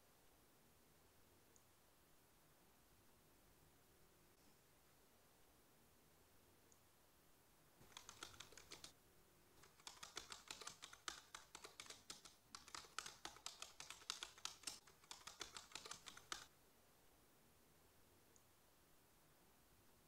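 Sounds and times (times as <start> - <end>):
typing on a computer keyboard: 7.8 - 9.0, 9.6 - 16.5.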